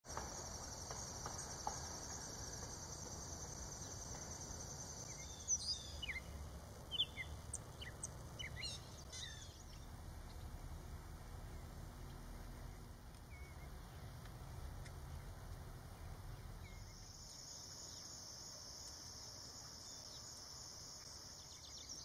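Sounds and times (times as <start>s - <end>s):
high pulsing insect trill: 0.1s - 9.8s, 16.2s - 22.0s
songbird chirps: 0.1s - 22.0s
low background rumble: 3.0s - 17.2s.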